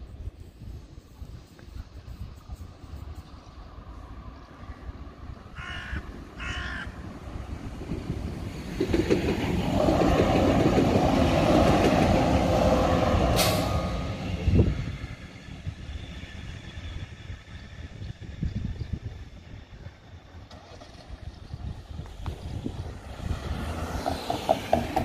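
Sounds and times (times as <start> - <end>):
light-rail car running on rails: 0.0 - 25.0
bird cawing: 5.6 - 7.0.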